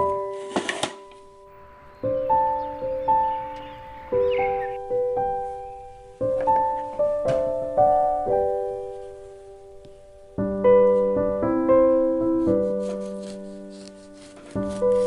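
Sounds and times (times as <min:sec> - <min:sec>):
piano notes and chords: 0:00.0 - 0:15.0.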